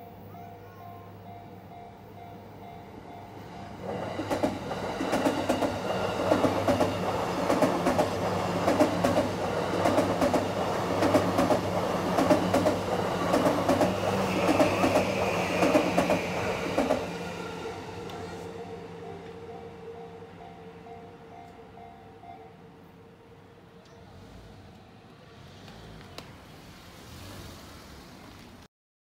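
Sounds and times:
train wheels clacking on rail joints: 0:03.8 - 0:17.1.

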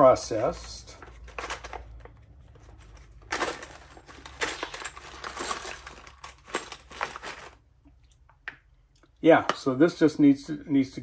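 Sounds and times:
brass cases clinking in bag: 0:01.2 - 0:02.0, 0:03.0 - 0:07.6.

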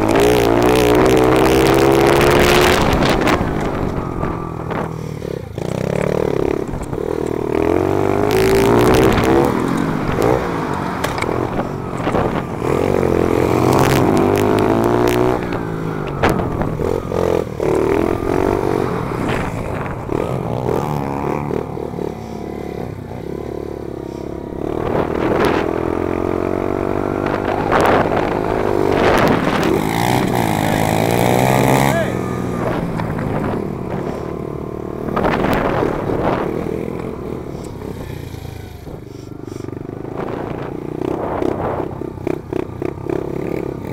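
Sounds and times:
motorcycle engine revving: 0:00.0 - 0:43.9.

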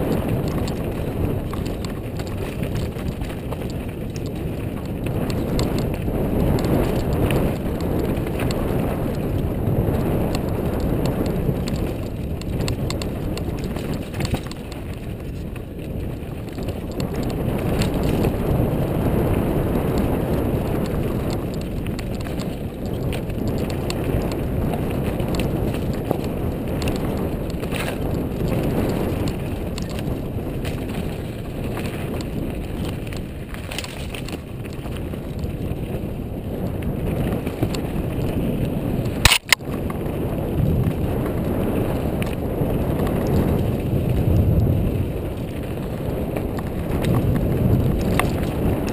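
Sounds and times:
tyres on dirt and gravel: 0:00.0 - 0:48.9
bike clattering over rocks: 0:11.6 - 0:18.2.

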